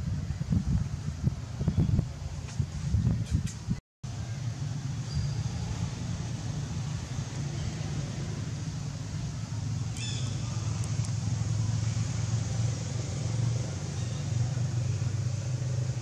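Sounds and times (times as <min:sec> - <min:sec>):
low motor rumble: 0:04.1 - 0:16.0.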